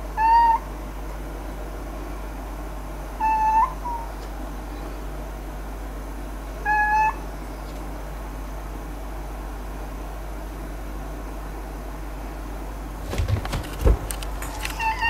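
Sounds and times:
cat meowing: 14.7 - 15.0.

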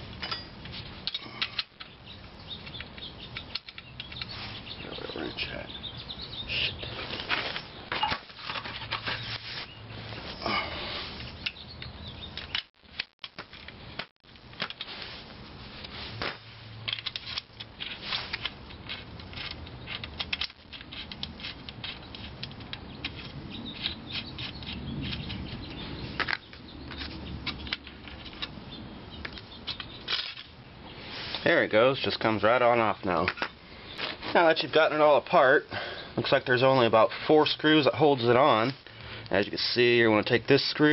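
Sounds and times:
screwdriver clicking and scraping metal: 2.6 - 4.3, 16.8 - 28.6.

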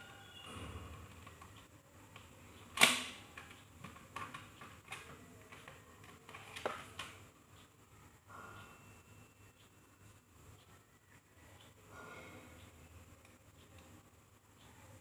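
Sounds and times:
plastic clicks and crackles: 1.0 - 7.2.

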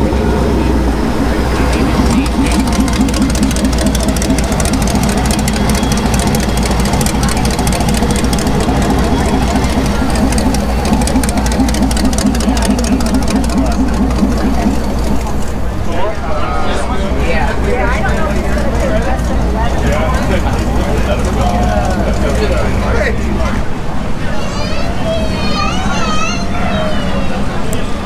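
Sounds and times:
buggy engine idling: 0.0 - 28.0.

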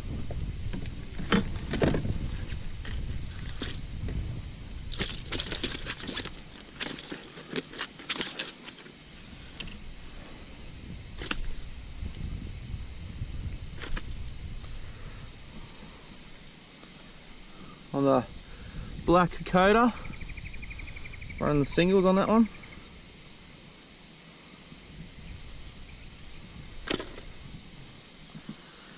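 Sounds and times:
hands handling fish and lure: 4.9 - 9.0.

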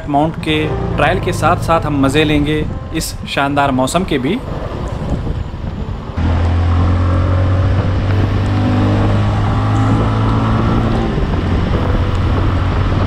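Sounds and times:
motorcycle engine running: 4.9 - 13.0.

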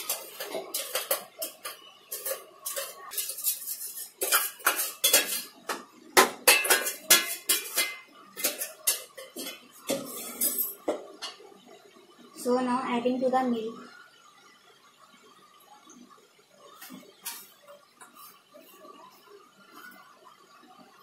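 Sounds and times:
metal spoon scraping in metal jar: 0.0 - 5.6, 6.5 - 10.8.

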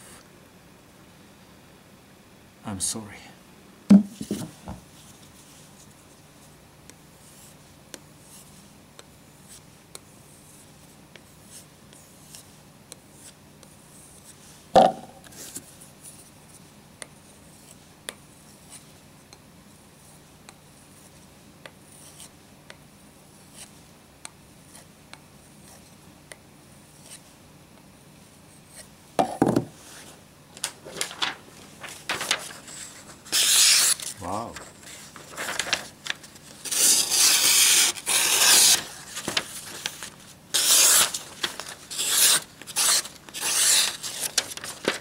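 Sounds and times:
sharp knock: 3.9 - 4.2
handling noises: 3.9 - 4.9, 29.2 - 33.3.

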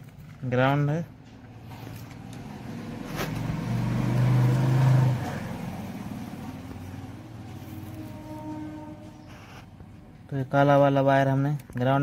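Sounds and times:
vehicle engine passing by: 1.5 - 10.1.

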